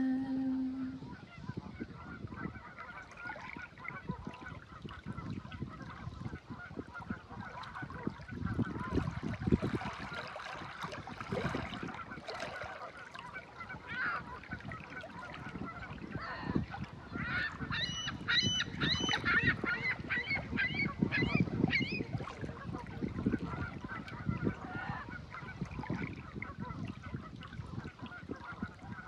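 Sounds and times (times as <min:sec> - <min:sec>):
woman singing held note: 0:00.0 - 0:01.0
geese honking: 0:12.0 - 0:21.5.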